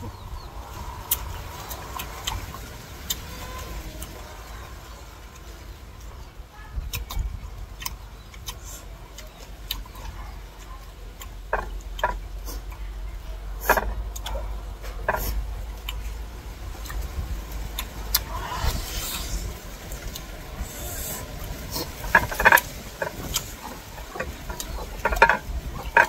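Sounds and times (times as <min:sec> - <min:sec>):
low steady rumble: 0:00.0 - 0:26.0.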